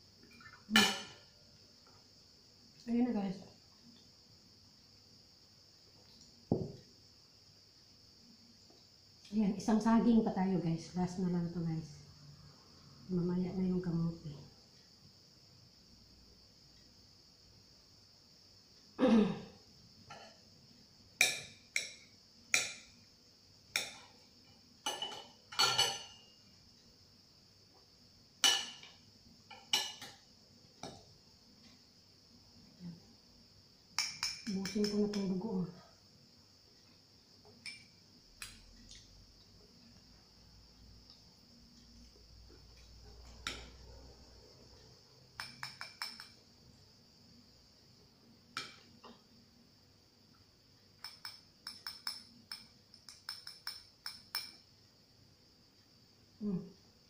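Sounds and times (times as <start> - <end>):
cutlery clinking on a ceramic plate: 0.3 - 1.2, 24.8 - 26.3, 28.4 - 30.2, 34.0 - 35.2, 45.4 - 46.4, 51.0 - 54.6.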